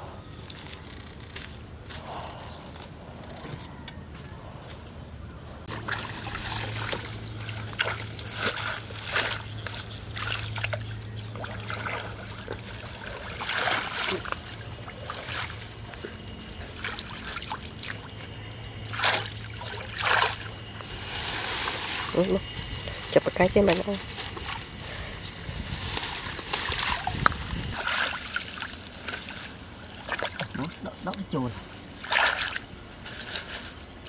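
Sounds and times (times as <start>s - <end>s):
low steady hum: 0.0s - 34.0s
water splashing and trickling: 5.7s - 24.8s, 25.5s - 32.8s.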